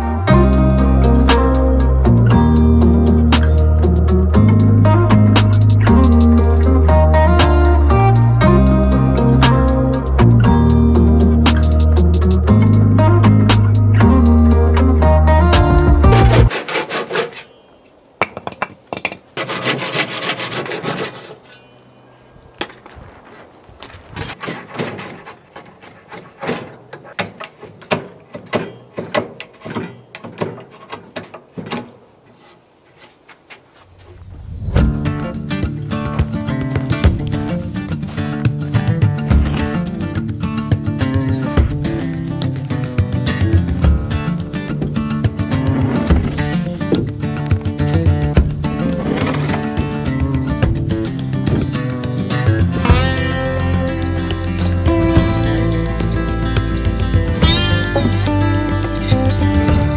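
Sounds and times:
guitar-led instrumental music: 0.0 - 16.5, 34.8 - 59.9
rasping saw strokes: 16.1 - 17.7, 19.4 - 21.8, 24.3 - 31.2.

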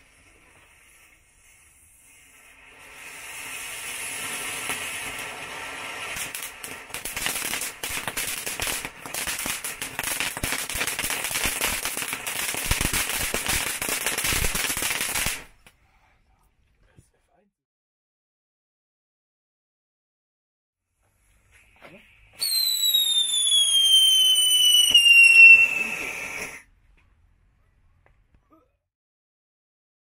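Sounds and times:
fountain firework hissing sparks: 0.0 - 15.5, 21.4 - 26.6
firework crackling: 0.0 - 15.7, 21.5 - 26.7.

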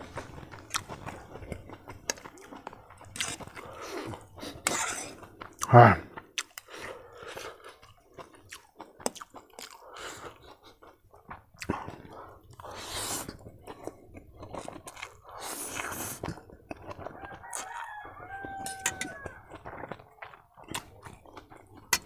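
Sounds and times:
clicky chewing: 0.0 - 22.0
noodles being slurped: 2.1 - 5.7, 12.6 - 17.9
rooster crowing: 17.0 - 19.6.

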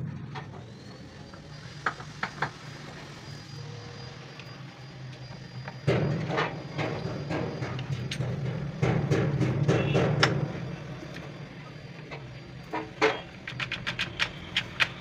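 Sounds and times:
rough machine noise: 0.0 - 15.0
sharp metallic clicks: 13.0 - 15.0.

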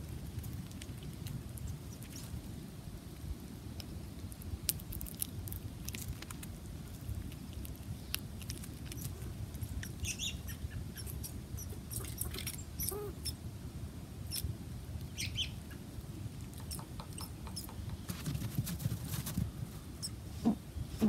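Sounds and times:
seeds cracking and crackling: 3.7 - 10.0.

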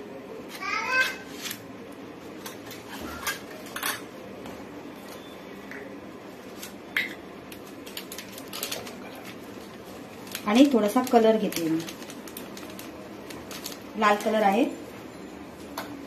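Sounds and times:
steel kitchenware clinking: 3.1 - 4.1.

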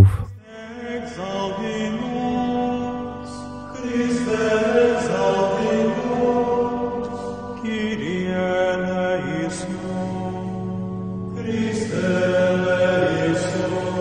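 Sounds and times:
slow chant with held notes: 0.0 - 14.0.

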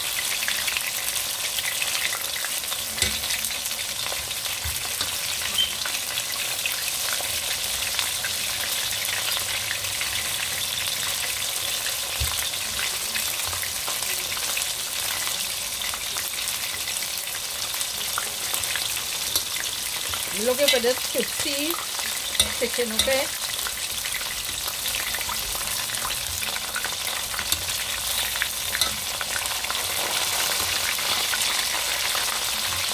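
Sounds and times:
oil sizzling and crackling: 0.0 - 32.9
metal tongs knocking: 22.3 - 23.2, 27.4 - 29.2.

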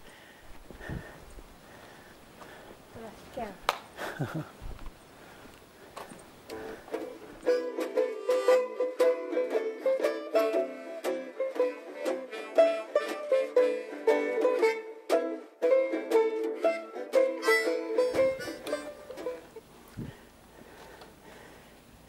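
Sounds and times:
plucked string instrument music: 6.5 - 19.6.

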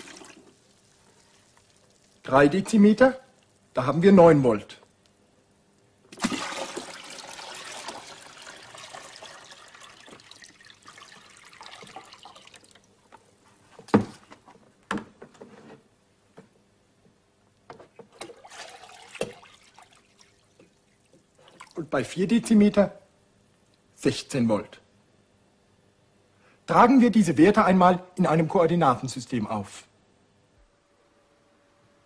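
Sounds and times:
water pouring into tank: 0.0 - 2.3, 6.1 - 13.0, 18.1 - 21.9
small water splashes: 6.1 - 12.9, 18.1 - 21.8
drips and knocks: 7.6 - 13.2, 17.8 - 21.8.

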